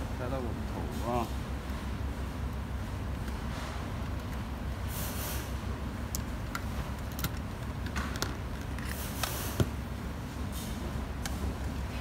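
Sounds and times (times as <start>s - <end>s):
clicks and rustles of wires: 6.0s - 9.8s.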